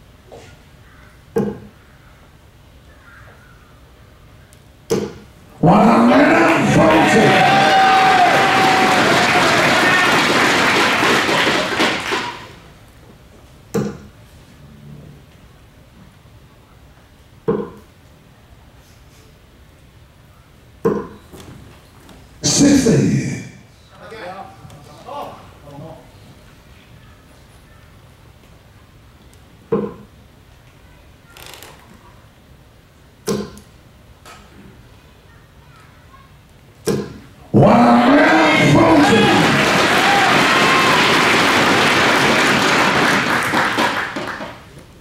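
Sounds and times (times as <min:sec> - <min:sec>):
dart striking dartboard: 0:01.4 - 0:01.7, 0:04.9 - 0:05.2, 0:20.9 - 0:21.2, 0:33.3 - 0:33.6, 0:36.9 - 0:37.2
crowd cheering and shouting: 0:05.6 - 0:12.5, 0:37.6 - 0:42.3.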